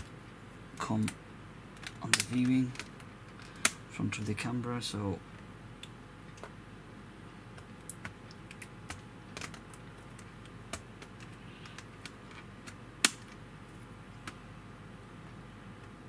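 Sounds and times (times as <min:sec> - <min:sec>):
sharp plastic snap: 0:13.0 - 0:13.4.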